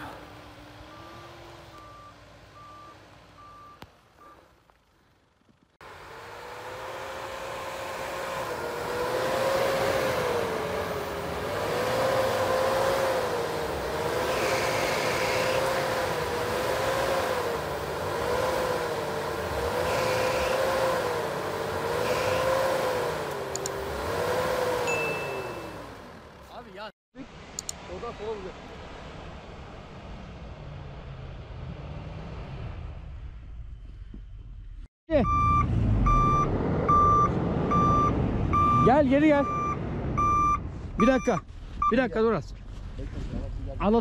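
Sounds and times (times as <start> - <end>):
pickup truck engine revving: 5.8 - 26.5.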